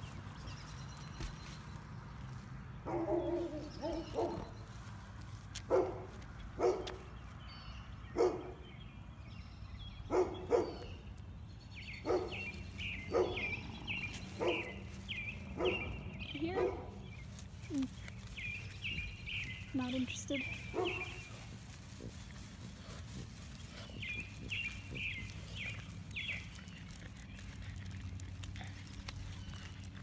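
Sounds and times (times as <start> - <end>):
dog barking: 2.9 - 4.4, 5.7 - 7.0, 8.1 - 8.6, 10.1 - 10.9, 12.0 - 12.4, 13.1 - 13.5, 14.4 - 14.8, 15.6 - 15.9, 16.5 - 16.9, 20.7 - 21.2
small bird chirping: 10.3 - 29.9.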